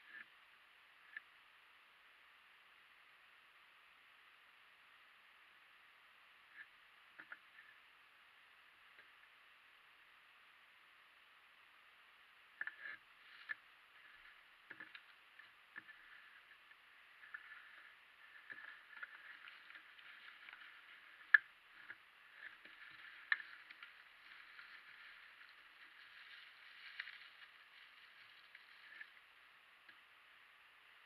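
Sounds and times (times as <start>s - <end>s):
small parts clicking and tapping: 6.6s - 7.7s, 12.5s - 30.1s.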